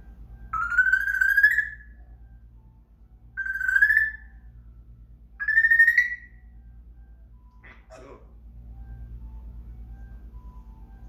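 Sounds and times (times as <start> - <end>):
parrot whistling: 0.5 - 2.0, 3.4 - 4.4, 5.4 - 6.5.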